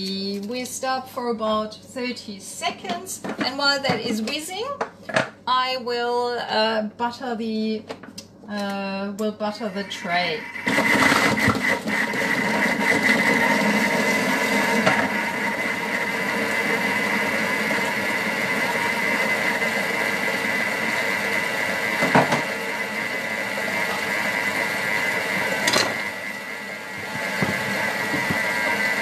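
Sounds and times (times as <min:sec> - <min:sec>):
food processor motor whirring: 0:09.6 - 0:29.0.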